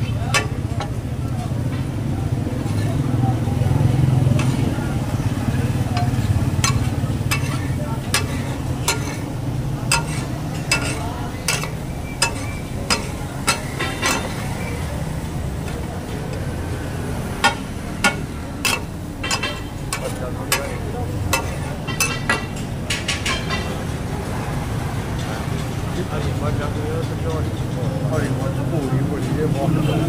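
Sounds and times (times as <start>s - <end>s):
metal spatula clacking on griddle: 0.0s - 2.0s, 4.2s - 16.6s, 17.2s - 23.7s
sizzling gravy: 3.8s - 22.6s.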